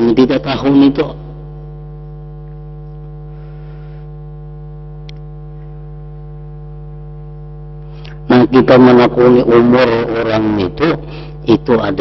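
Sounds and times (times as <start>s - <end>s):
electrical mains hum: 0.0s - 12.0s
faint click: 5.0s - 5.7s.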